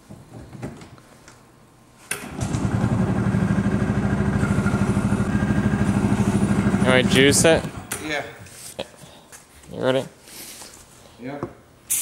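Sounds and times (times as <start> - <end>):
small engine starting and idling: 2.1 - 7.9.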